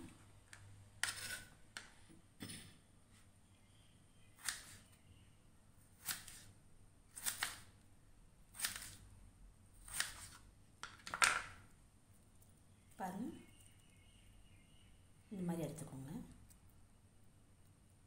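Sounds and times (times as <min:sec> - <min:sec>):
knife cutting potato on board: 0:01.0 - 0:01.5, 0:04.4 - 0:04.8, 0:05.9 - 0:06.5, 0:07.1 - 0:07.7, 0:08.5 - 0:09.0, 0:09.8 - 0:10.4.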